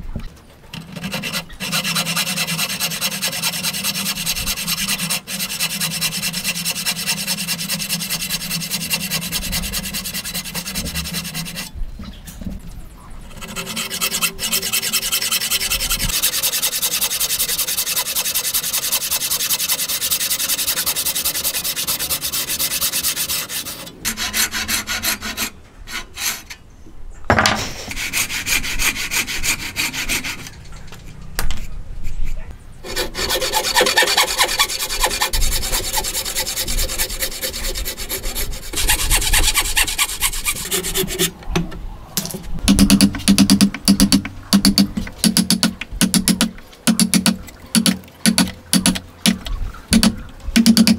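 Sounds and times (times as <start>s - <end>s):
hand saw rasping through wood: 0.8s - 11.7s, 13.3s - 26.5s, 27.8s - 30.5s, 32.8s - 41.4s.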